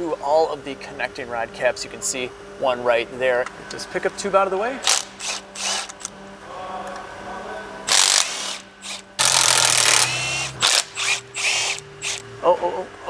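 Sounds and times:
cordless impact wrench running: 4.8s - 6.1s, 7.9s - 12.3s.

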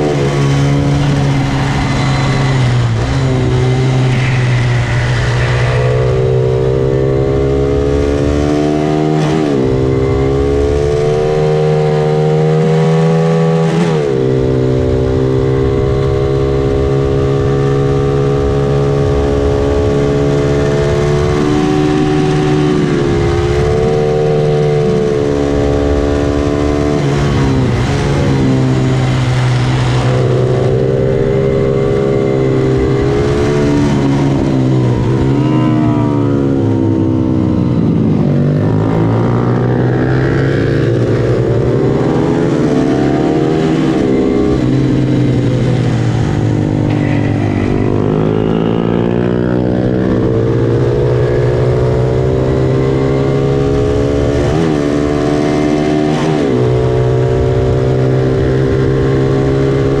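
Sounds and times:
motorcycle engine racing: 0.0s - 60.0s.

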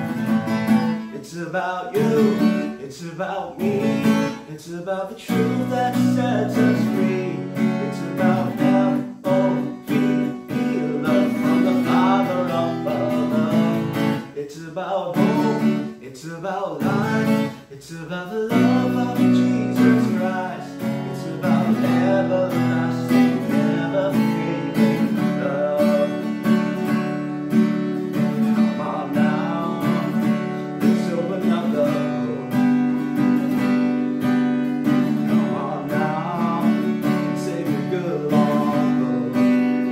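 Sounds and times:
acoustic guitar strumming: 0.0s - 39.9s
man singing worship song: 1.0s - 26.5s, 28.4s - 33.0s, 34.9s - 39.9s.

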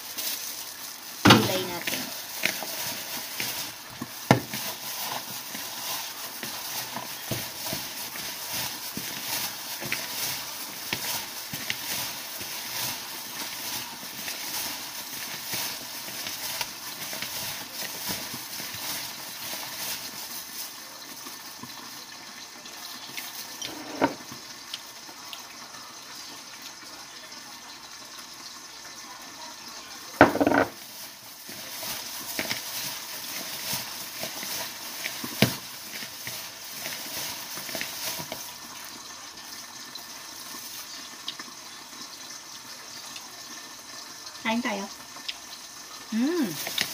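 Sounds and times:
gloved hands squishing food: 0.0s - 21.9s, 30.2s - 41.6s, 46.1s - 46.9s.

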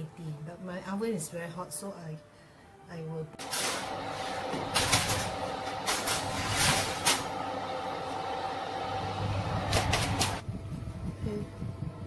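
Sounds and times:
fan oven humming: 3.4s - 12.0s.

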